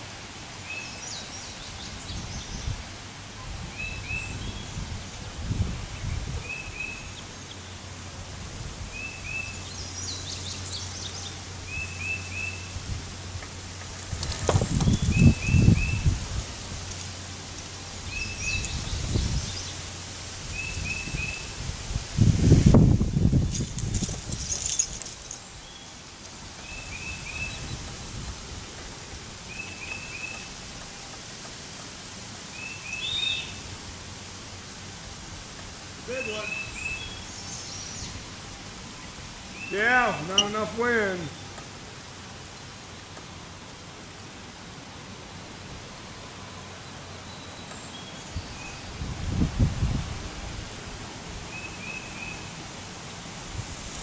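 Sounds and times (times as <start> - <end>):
wind rumble on microphone: 1.7 - 7.2, 8.2 - 10.3, 12.6 - 17.0, 17.9 - 25.4, 26.4 - 29.4, 48.3 - 51.5
bird chirping: 8.9 - 12.8, 14.5 - 17.2, 17.8 - 19.8, 20.5 - 21.6, 29.5 - 31.0, 32.5 - 33.6, 36.1 - 41.6
parachute canopy crackling: 13.6 - 17.9
fabric rustling and flapping: 14.0 - 15.2.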